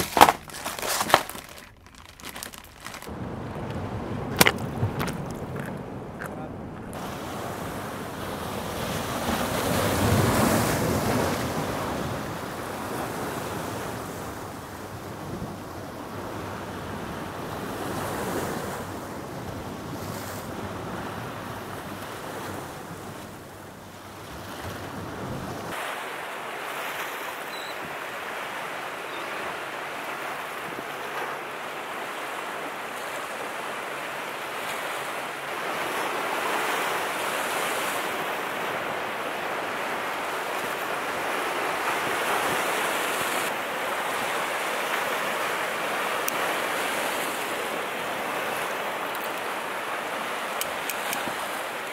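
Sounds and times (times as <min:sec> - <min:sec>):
ocean surf breaking: 0:00.0 - 0:51.9
wind rumble on microphone: 0:03.1 - 0:25.8.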